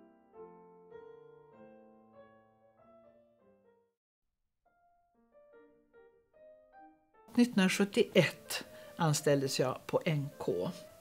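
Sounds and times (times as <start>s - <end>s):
quiet solo piano: 0.0s - 3.8s.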